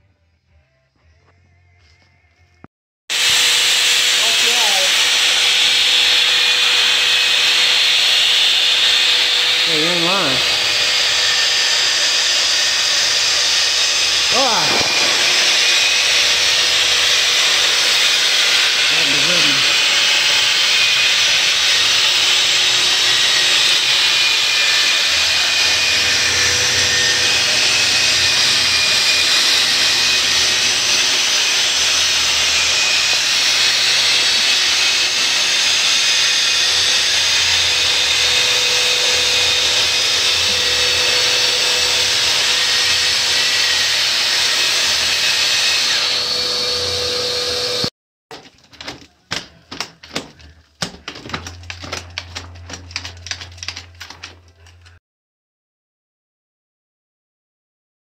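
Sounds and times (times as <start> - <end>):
power sander hissing: 3.1 - 47.9.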